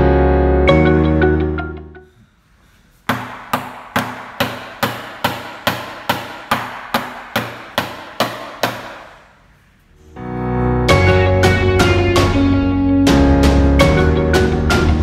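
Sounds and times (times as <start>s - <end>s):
sharp percussive knocks: 3.1s - 9.2s.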